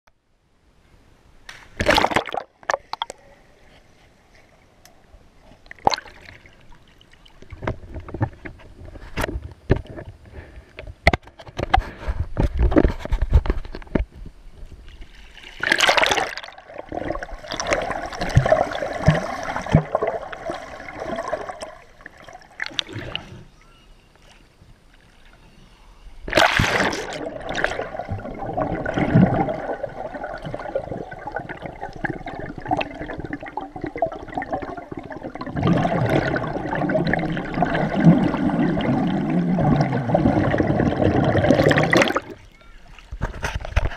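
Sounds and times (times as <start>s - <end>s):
underwater knocks and clicks: 7.5s - 10.2s
underwater bubbling and gurgling: 14.9s - 23.5s, 26.2s - 43.9s.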